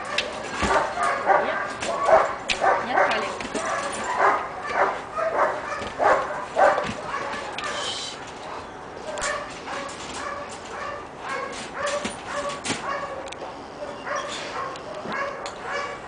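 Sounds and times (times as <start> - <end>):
dog yelping whines: 0.0 - 16.0.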